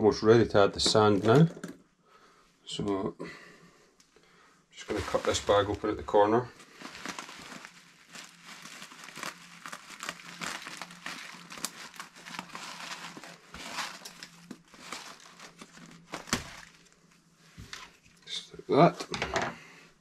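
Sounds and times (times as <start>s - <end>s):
plastic bag crinkling: 4.8s - 18.1s
scissors cutting plastic: 9.0s - 16.7s.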